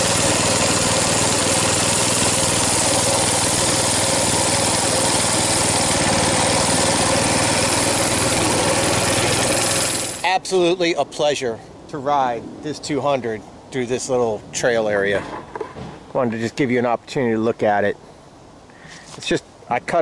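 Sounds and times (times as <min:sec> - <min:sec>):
mini bike engine running: 0:00.0 - 0:10.2.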